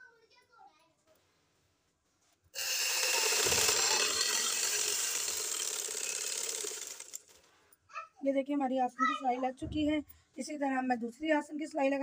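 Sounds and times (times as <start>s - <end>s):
sewing machine stitching: 2.6s - 7.4s.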